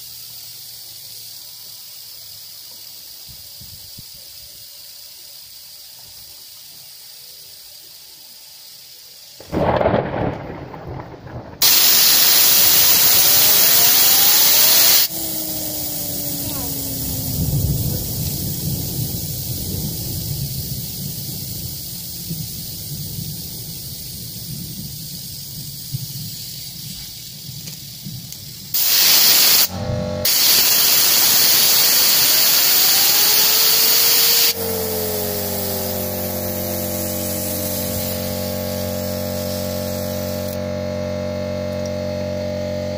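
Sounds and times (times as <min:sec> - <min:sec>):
compressed air hissing: 0:00.0 - 0:09.4, 0:11.6 - 0:42.6
steady hum: 0:09.5 - 0:42.9
fidget spinner whine: 0:09.6 - 0:42.9.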